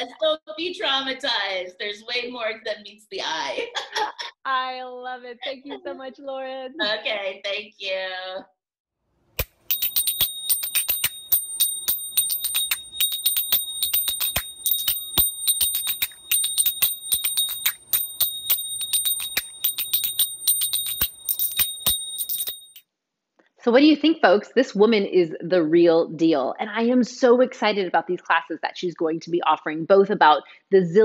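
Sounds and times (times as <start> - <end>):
finger cymbals striking: 9.4 - 22.8.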